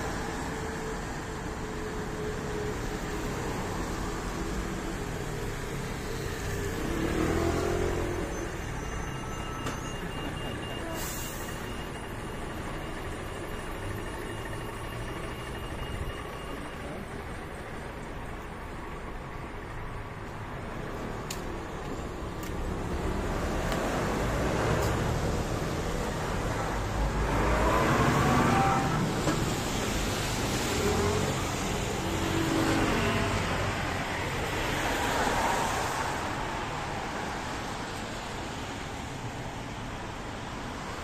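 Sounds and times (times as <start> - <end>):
traffic on wet street: 0.0 - 41.0
tyres hissing on wet road: 34.6 - 39.0.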